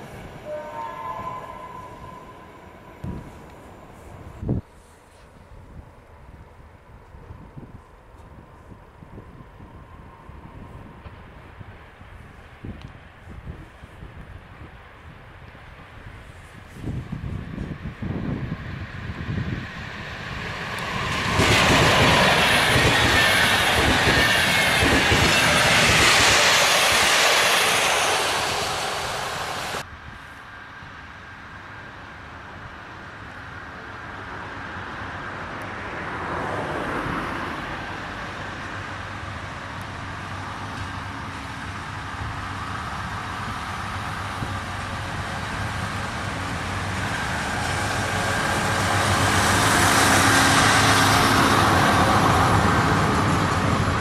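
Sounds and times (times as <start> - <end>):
train wheels clattering on rails: 20.4 - 29.8.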